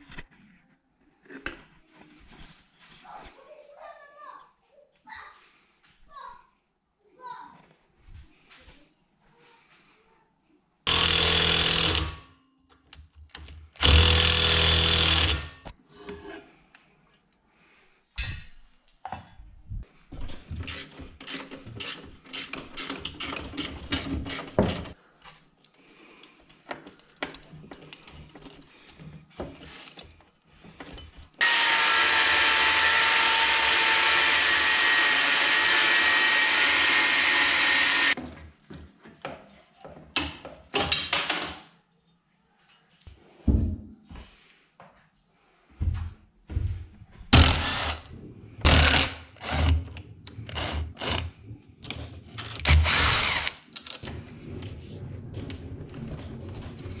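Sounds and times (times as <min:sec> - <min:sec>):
power tool bursts: 0:10.9 - 0:12.2, 0:13.8 - 0:15.6, 0:31.4 - 0:38.2, 0:52.7 - 0:53.6
power tool running steadily: 0:10.9 - 0:12.2, 0:13.8 - 0:15.5, 0:31.4 - 0:38.2, 0:52.7 - 0:53.5.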